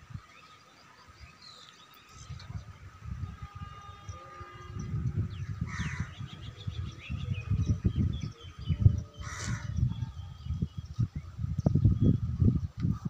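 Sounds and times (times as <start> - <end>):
birds calling: 0.0 - 12.2
wind buffeting microphone: 2.0 - 13.0
short harsh bird calls: 9.2 - 9.8.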